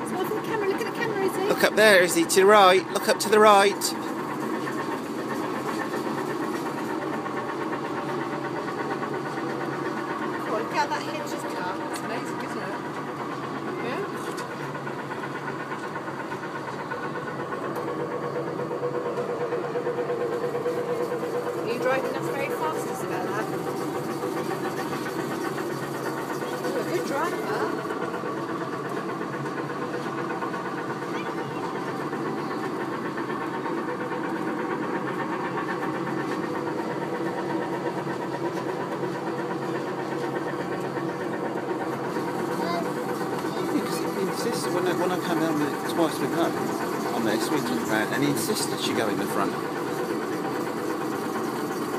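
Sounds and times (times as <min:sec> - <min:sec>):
toy tractor motor humming: 0:00.0 - 0:07.6, 0:20.5 - 0:28.3, 0:35.8 - 0:51.9.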